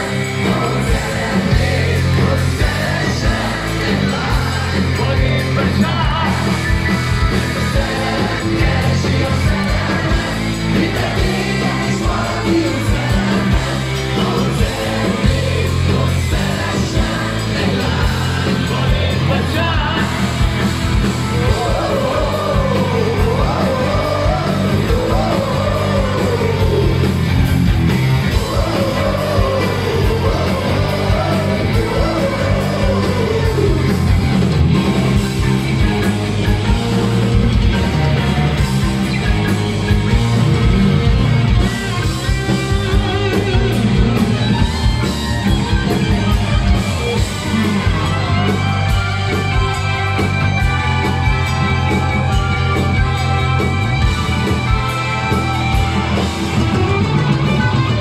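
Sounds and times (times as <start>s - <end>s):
man singing: 0.0s - 6.8s, 7.6s - 20.3s, 21.3s - 27.1s, 28.3s - 34.3s
bass guitar: 0.0s - 58.0s
drums: 0.0s - 58.0s
electric guitar: 0.0s - 58.0s
keyboards: 0.0s - 58.0s.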